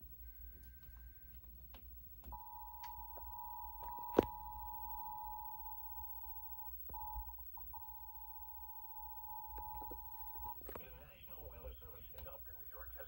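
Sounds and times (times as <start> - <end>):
two-tone alert alarm: 2.3 - 10.7.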